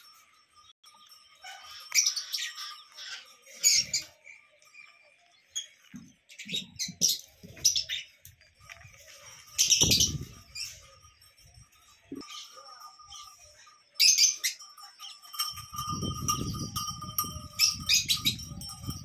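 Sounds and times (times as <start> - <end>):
parrots chirping and squawking: 1.3 - 4.9, 5.5 - 11.2.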